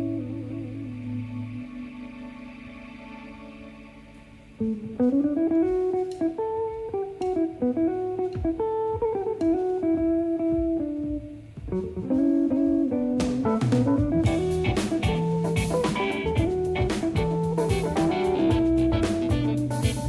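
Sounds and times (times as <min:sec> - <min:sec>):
plucked guitar melody: 0:00.0 - 0:20.0
drums: 0:04.6 - 0:20.0.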